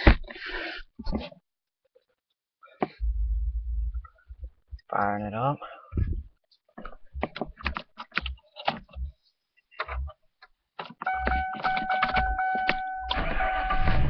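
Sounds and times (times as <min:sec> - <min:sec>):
car engine starting: 0:12.9 - 0:14.0.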